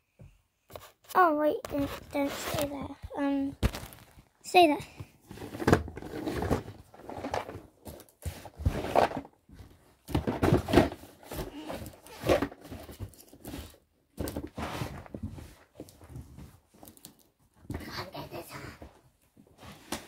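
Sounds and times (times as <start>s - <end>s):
clothing brushing microphone: 1.7s - 2.8s
cardboard boxes scraping and knocking: 5.2s - 16.6s.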